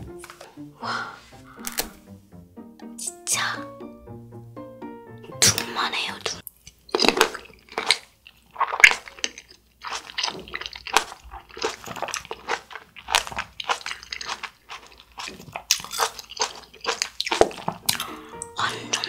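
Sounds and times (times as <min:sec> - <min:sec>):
grapes being chewed: 0:06.4 - 0:19.0.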